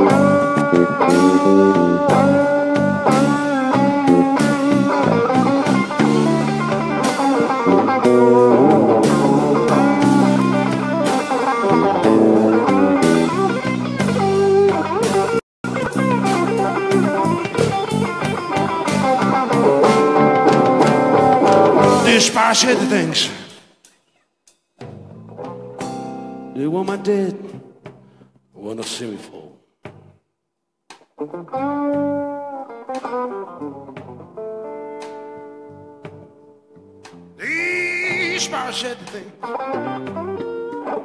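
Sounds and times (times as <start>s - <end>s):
electric guitar bending notes: 0.0s - 22.2s, 31.2s - 41.0s
bass guitar: 0.0s - 23.4s, 24.8s - 28.4s, 31.0s - 41.0s
drum kit: 0.0s - 26.6s, 37.0s - 40.9s.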